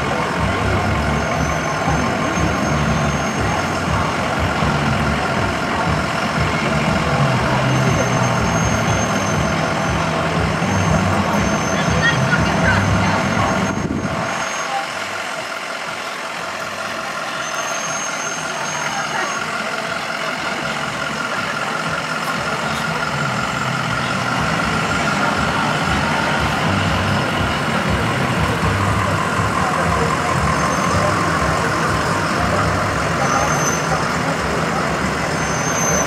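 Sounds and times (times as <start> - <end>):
emergency vehicle engines rumbling: 0.0 - 36.0.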